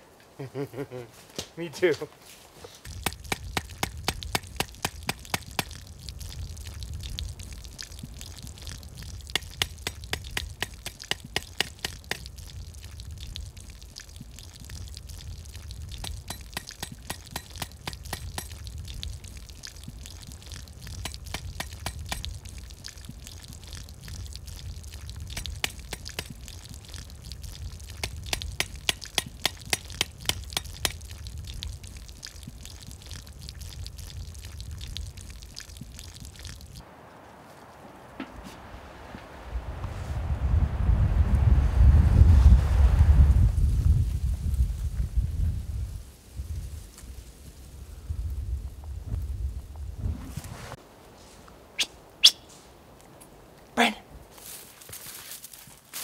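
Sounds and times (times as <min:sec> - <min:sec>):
water trickling and spurting: 0:02.2 - 0:40.3.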